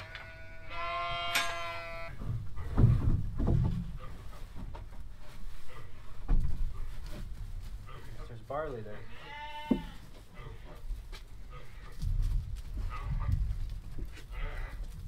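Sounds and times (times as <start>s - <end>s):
sheep bleating: 0.0s - 2.2s, 9.0s - 10.6s, 14.1s - 15.0s
low thumps and rumbling: 2.1s - 5.4s.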